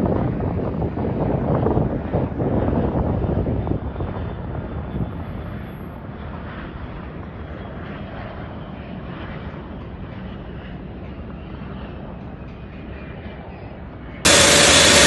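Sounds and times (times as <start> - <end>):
wind buffeting microphone: 0.0 - 8.4
jet engines running: 14.2 - 15.0.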